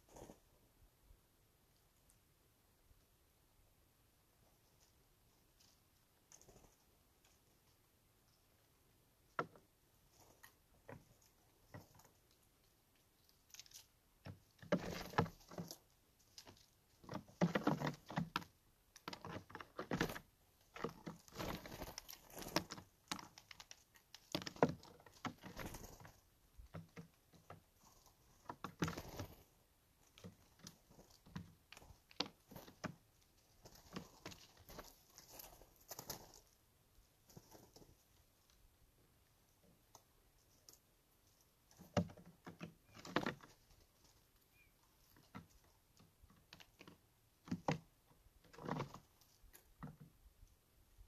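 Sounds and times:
bird feet and bills tapping: 4.4 - 50.6
bird wings fluttering: 25.3 - 26.1.

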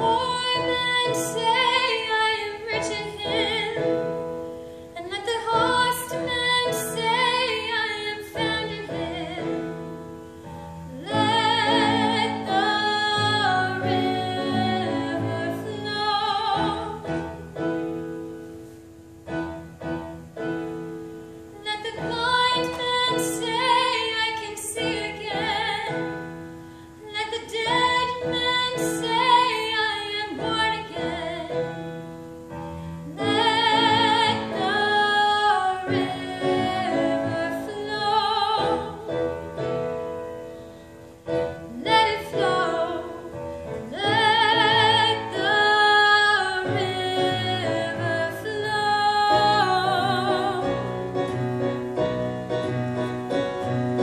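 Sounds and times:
woman singing operatically: 0.0 - 4.2, 5.0 - 10.0, 10.9 - 17.2, 21.5 - 26.3, 27.0 - 31.7, 33.0 - 39.4, 41.5 - 51.0.

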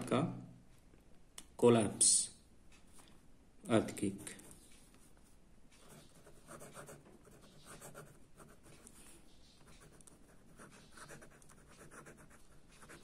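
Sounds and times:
pen scratching on paper: 5.8 - 13.0.

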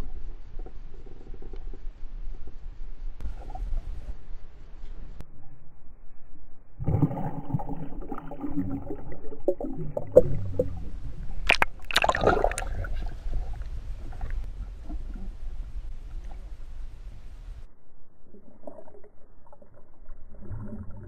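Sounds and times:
underwater sloshing and gurgling: 0.0 - 5.6, 6.8 - 21.0
sharp splashes: 11.4 - 13.1.

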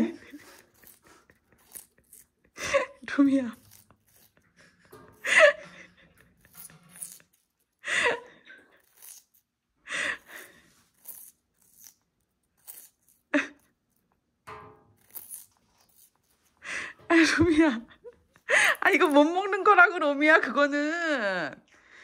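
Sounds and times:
soft nibbling: 0.0 - 4.9, 8.6 - 9.6, 10.2 - 14.3, 15.0 - 16.6
bird beak crunching watermelon rind: 0.3 - 2.6, 3.5 - 4.8, 6.1 - 7.8, 8.7 - 9.5, 10.3 - 13.3, 14.9 - 16.6.

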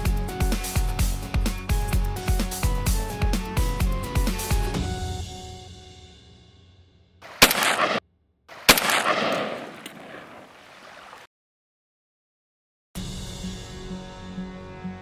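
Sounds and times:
background music: 0.0 - 6.3, 13.0 - 15.0
shotgun shots: 7.2 - 10.9.

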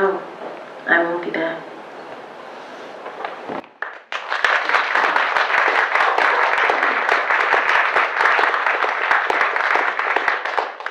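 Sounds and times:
audience applauding: 3.6 - 10.9.

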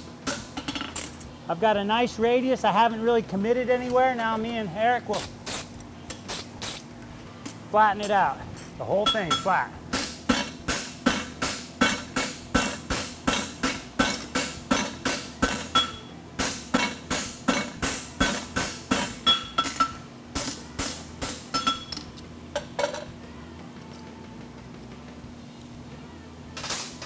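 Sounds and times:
hammer ringing on anvil: 9.0 - 9.6, 12.6 - 20.0, 21.5 - 21.9.

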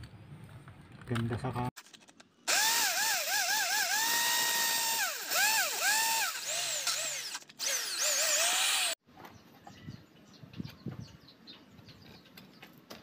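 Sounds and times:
electric drill boring into tile: 2.5 - 9.0.

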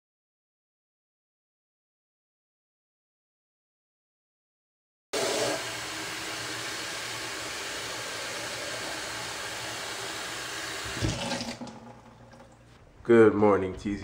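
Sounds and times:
faucet water filling bottle: 5.2 - 12.7.

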